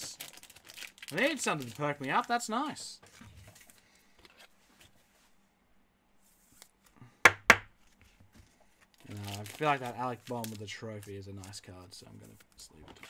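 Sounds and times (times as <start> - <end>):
cards tapped on tabletop: 7.3 - 7.7.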